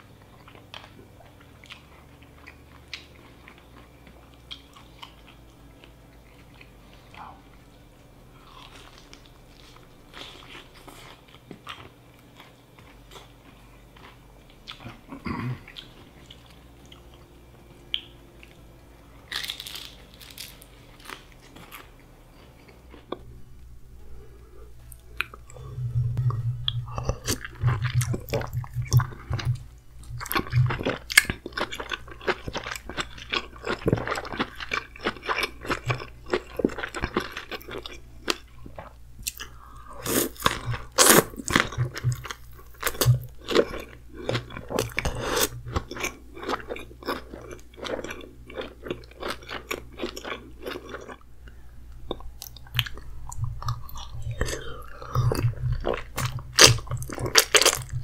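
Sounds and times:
steady low hum: 0.0s - 58.0s
chewing and mouth smacking: 24.8s - 58.0s.

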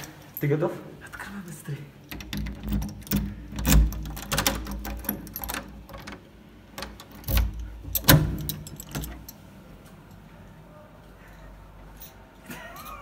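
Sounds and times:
key clicking in lock: 2.1s - 9.4s.

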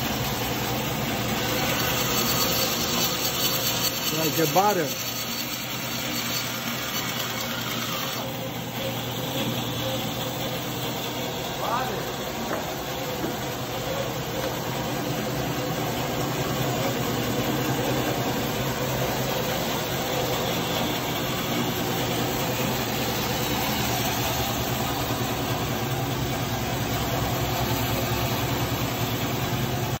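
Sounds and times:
band saw motor hum and whir: 0.0s - 30.0s.

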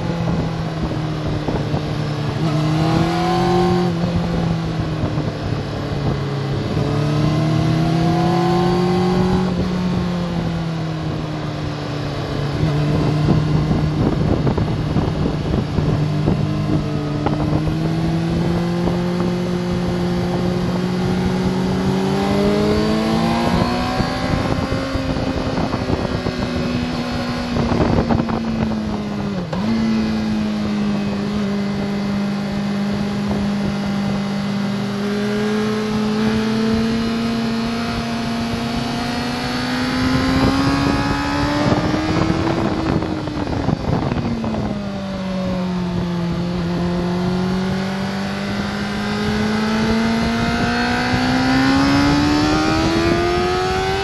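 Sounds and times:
motorcycle engine at speed: 0.0s - 54.0s
wind rushing: 12.3s - 54.0s.

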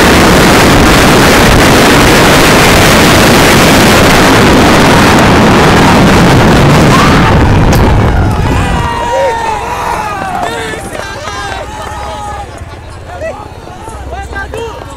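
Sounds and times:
wind buffeting microphone: 0.0s - 11.7s
engine and road rumble: 0.0s - 14.9s.

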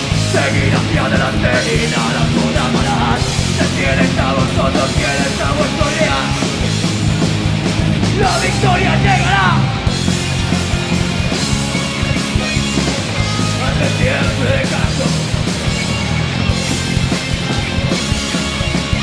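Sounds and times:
heavy metal band playing loud: 0.0s - 19.0s.

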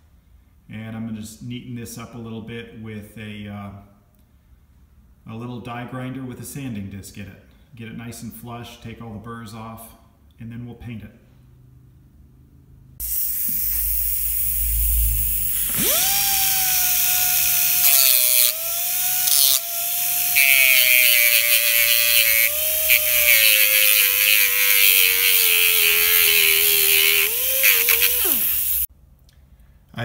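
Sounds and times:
die grinder whining: 13.0s - 28.9s.

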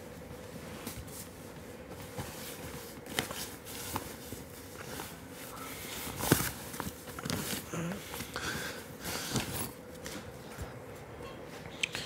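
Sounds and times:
faint room hum: 0.0s - 12.0s.

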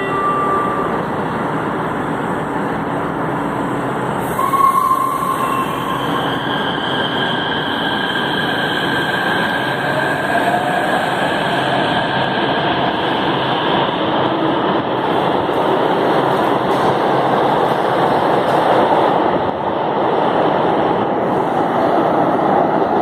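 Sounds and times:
short tone: 0.0s - 1.1s.

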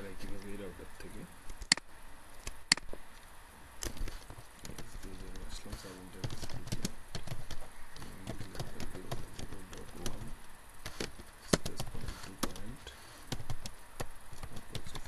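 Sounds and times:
computer keyboard typing: 8.2s - 10.3s, 13.3s - 13.8s, 14.4s - 15.0s.

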